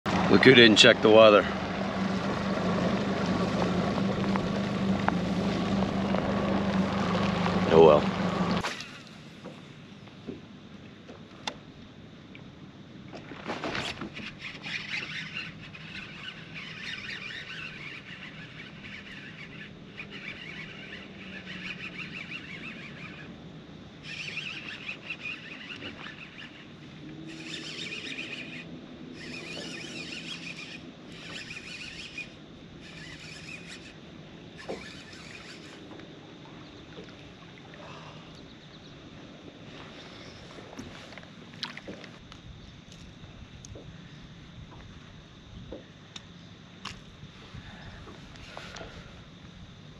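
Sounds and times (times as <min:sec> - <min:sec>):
fishing reel cranking: 0:02.1 - 0:09.1, 0:13.8 - 0:23.4, 0:24.0 - 0:34.0, 0:34.6 - 0:35.9.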